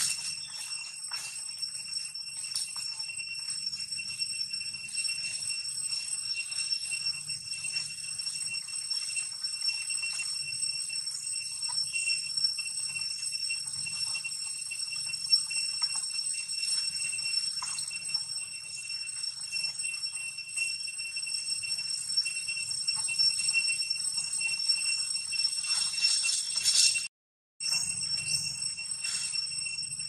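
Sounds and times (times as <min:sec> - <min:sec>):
high-pitched ringing drone: 0:00.0 - 0:30.0.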